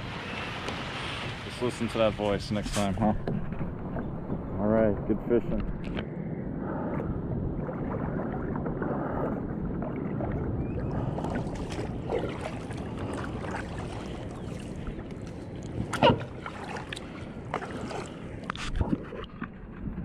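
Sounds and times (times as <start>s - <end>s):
steady low rushing: 2.4s - 16.4s
paddle dipping through water: 7.6s - 20.0s.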